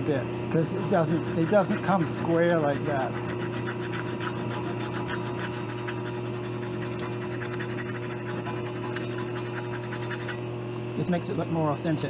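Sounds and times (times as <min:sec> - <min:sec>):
file rasping on metal: 0:00.6 - 0:10.4.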